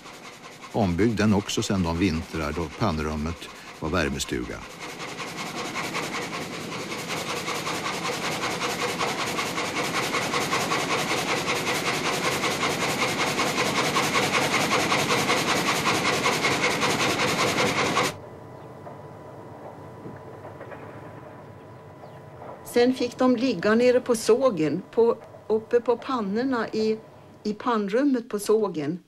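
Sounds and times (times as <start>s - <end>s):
sawmill saw cutting log: 0.0s - 18.2s, 22.7s - 27.0s
steady industrial hum: 18.1s - 28.2s.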